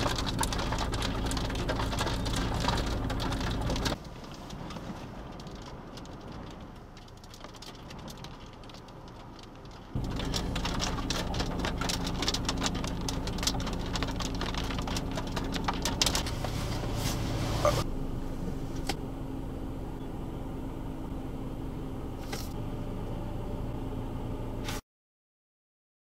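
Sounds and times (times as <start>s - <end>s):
rain pattering: 0.0s - 17.3s.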